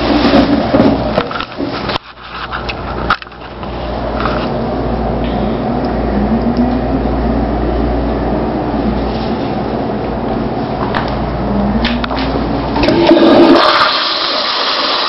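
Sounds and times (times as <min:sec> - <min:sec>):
toilet flush water rush: 0:00.0 - 0:00.7, 0:12.8 - 0:15.0.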